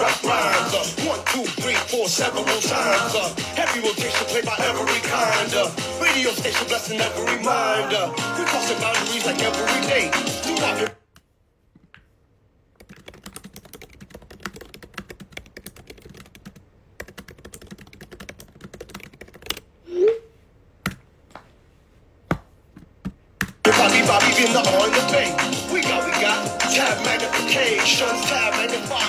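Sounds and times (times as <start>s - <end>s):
music: 0.0s - 10.9s, 23.6s - 29.0s.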